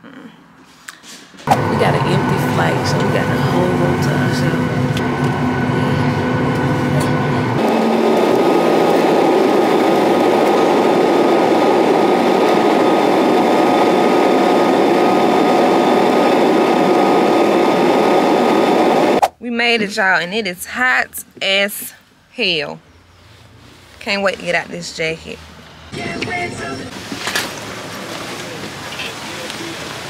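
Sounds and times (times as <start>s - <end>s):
jet engine hum in cabin: 1.4s - 19.2s
jet engines roaring at takeoff: 1.5s - 19.2s.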